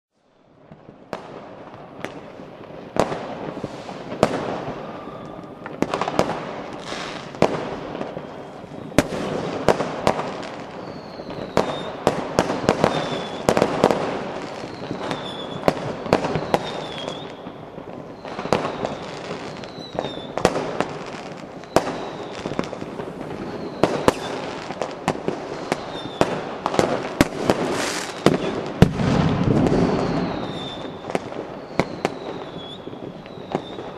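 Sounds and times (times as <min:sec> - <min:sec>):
crackling hiss: 0:00.2 - 0:33.9
fireworks bangs and cracks: 0:00.4 - 0:33.9
high falling whistles: 0:04.9 - 0:05.6, 0:10.8 - 0:12.0, 0:12.8 - 0:13.5, 0:14.5 - 0:17.4, 0:23.4 - 0:24.4, 0:27.8 - 0:28.5, 0:29.6 - 0:33.9.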